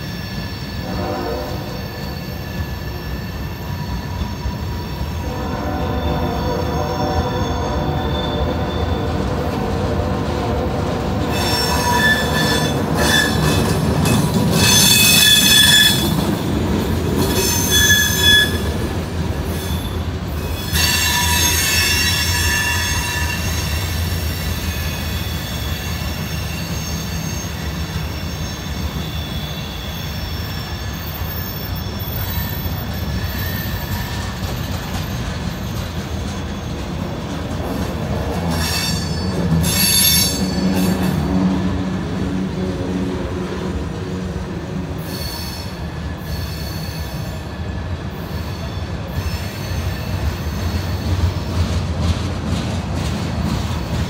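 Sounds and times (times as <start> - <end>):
high-pitched wheel squeal: 0.0 - 9.2, 11.3 - 16.2, 17.2 - 18.8, 19.5 - 36.8, 38.5 - 41.3, 45.0 - 51.1
train wheels rumbling on rail: 0.0 - 54.0.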